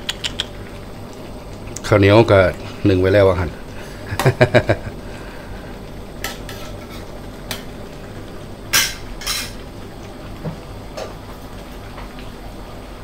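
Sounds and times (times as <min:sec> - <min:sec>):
utensil scraping metal wok: 0:06.3 - 0:07.1.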